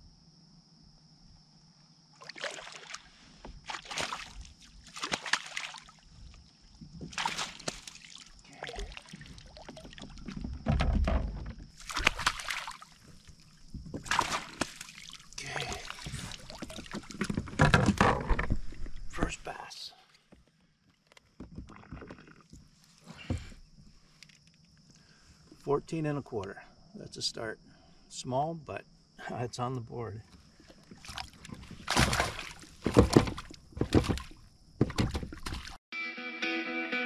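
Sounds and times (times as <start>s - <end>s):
water splashing and sloshing: 2.1s - 19.4s, 30.3s - 35.8s.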